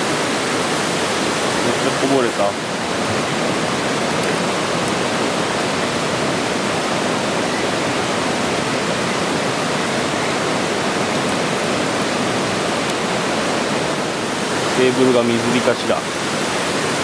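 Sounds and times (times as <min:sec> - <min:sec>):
stream water rushing: 0:00.0 - 0:17.0.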